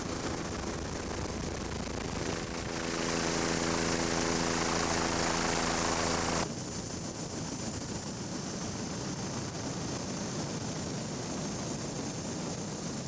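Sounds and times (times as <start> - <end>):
helicopter turbine and rotors: 0.0 - 9.2.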